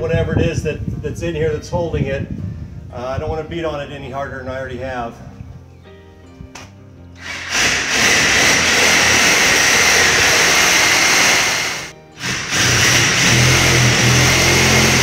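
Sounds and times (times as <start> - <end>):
reciprocating saw cutting: 7.2 - 15.0.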